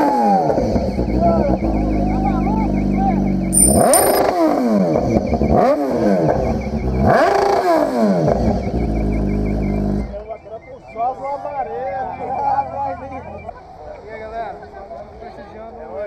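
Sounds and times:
motorcycle engine idling and revving: 0.0 - 10.2.

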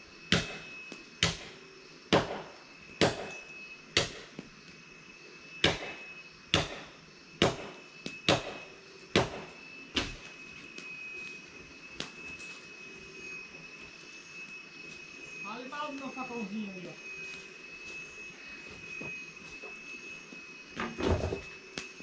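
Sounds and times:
faint high-pitched tone: 2.6 - 3.9, 7.8 - 22.0.

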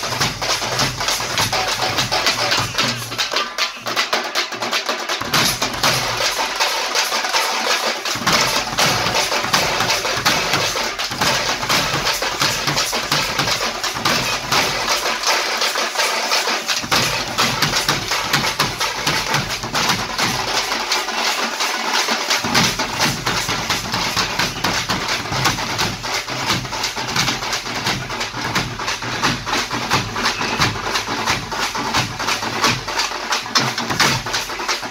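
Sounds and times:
frame drums beaten with sticks: 0.0 - 34.9.

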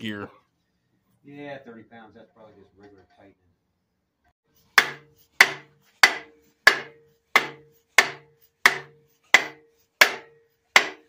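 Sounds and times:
mallet striking metal gear: 4.7 - 11.0.

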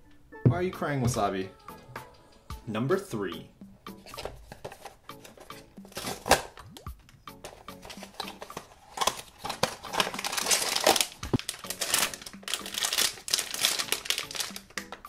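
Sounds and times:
cardboard box rustling: 7.5 - 14.6
foil bag crinkling and tearing: 7.8 - 15.0.

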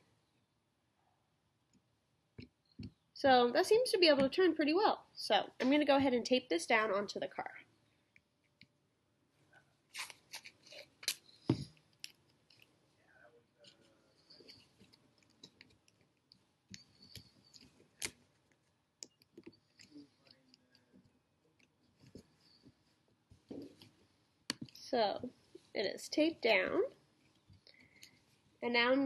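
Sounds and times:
adhesive tape tearing off roll: 9.9 - 11.3
tape clicks and rustling: 9.9 - 12.8, 13.6 - 24.8.

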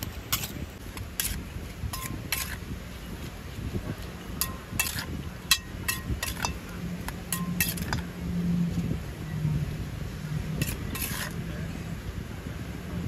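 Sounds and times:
metal spoon clinking on bowl: 4.4 - 6.7, 7.3 - 8.0.

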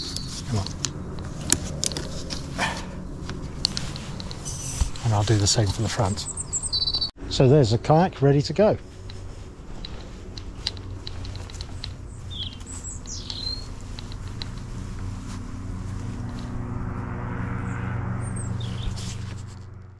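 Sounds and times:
birds chirping: 0.0 - 7.5, 8.5 - 16.6, 17.5 - 19.5
low hum: 0.0 - 19.9
light ticks: 9.0 - 15.5.

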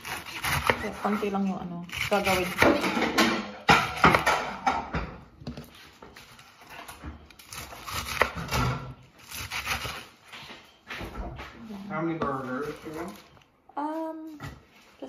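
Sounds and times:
knife chopping lettuce: 0.0 - 4.8, 5.6 - 10.1.

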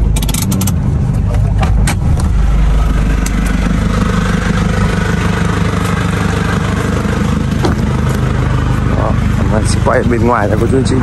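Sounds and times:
motorbike engine running: 2.2 - 11.0.

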